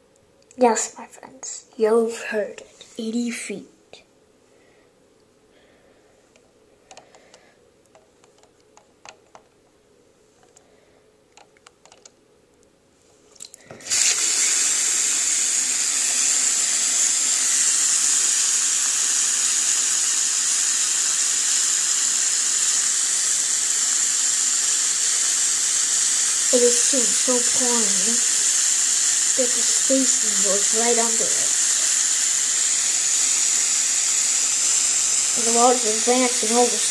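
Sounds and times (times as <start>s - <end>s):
tap water gushing: 13.7s - 36.9s.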